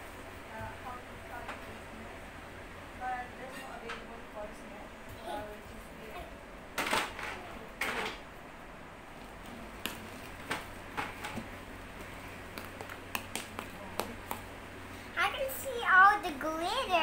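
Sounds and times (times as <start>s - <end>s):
spoon stirring slime: 11.2s - 14.6s.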